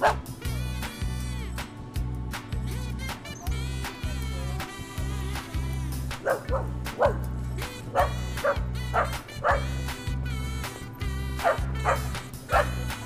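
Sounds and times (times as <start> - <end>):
dog yipping and barking: 0.0 - 0.3, 6.2 - 7.2, 7.9 - 9.7, 11.4 - 12.8
background music with bouncing beat: 0.0 - 13.0.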